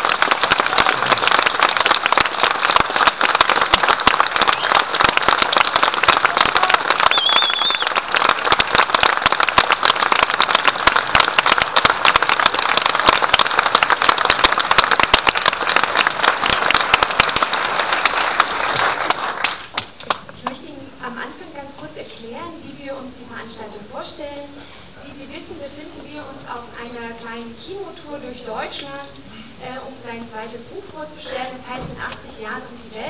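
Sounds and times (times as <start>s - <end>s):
large audience applauding: 0.0s - 20.3s.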